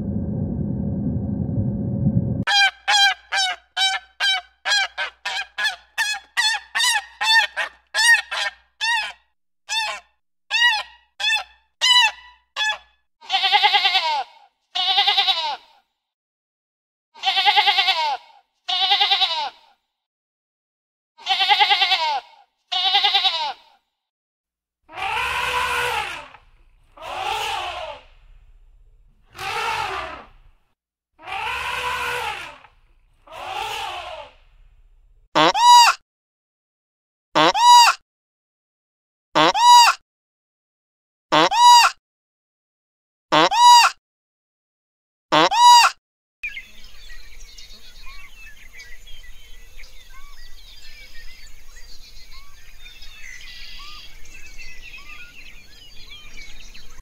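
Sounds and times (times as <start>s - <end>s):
ducks calling: 25.0s - 28.5s, 31.3s - 34.6s.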